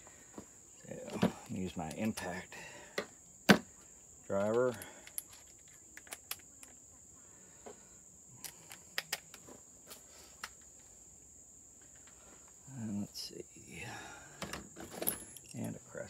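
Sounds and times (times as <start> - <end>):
insect drone: 0.0 - 16.0
hand tools clicking and tapping: 1.1 - 2.4.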